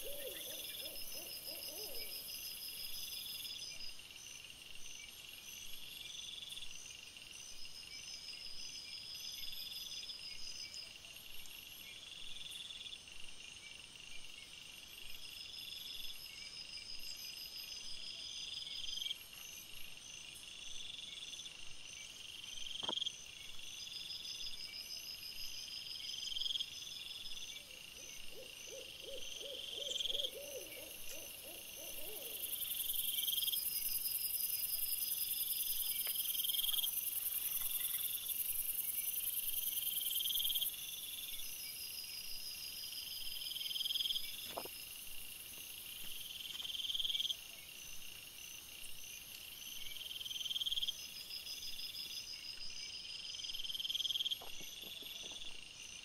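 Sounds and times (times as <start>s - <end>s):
wavering hoot-like call: 0.0s - 2.3s, 28.0s - 32.7s
insect-like chirring: 28.3s - 47.5s.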